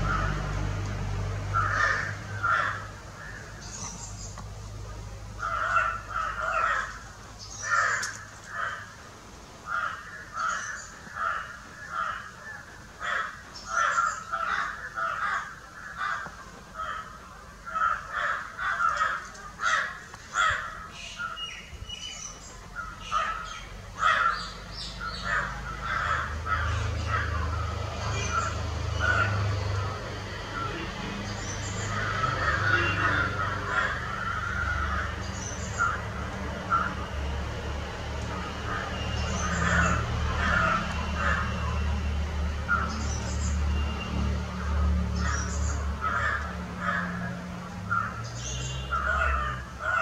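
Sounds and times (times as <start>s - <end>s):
crows cawing: 0.0s - 0.5s, 1.5s - 4.0s, 5.4s - 9.0s, 9.6s - 21.4s, 22.8s - 37.4s, 38.4s - 42.0s, 44.6s - 50.0s.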